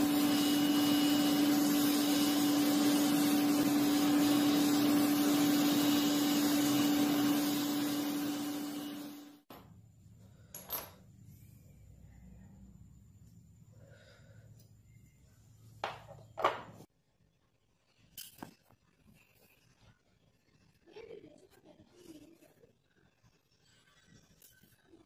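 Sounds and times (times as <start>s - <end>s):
electric air blower humming: 0.0s - 9.4s.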